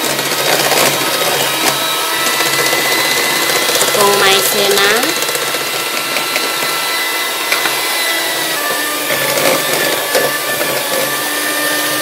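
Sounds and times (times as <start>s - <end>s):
beaters whisking batter in metal bowl: 0.0s - 12.0s
electric hand mixer whining: 0.0s - 12.0s.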